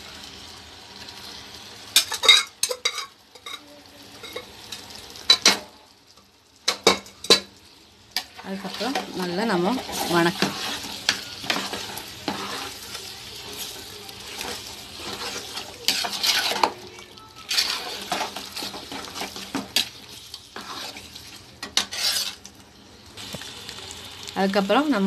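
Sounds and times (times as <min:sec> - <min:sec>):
masala sizzling: 0:00.0 - 0:25.0
ladle scraping a metal pot: 0:09.8 - 0:12.9, 0:14.3 - 0:16.8, 0:17.5 - 0:19.9, 0:20.6 - 0:22.4.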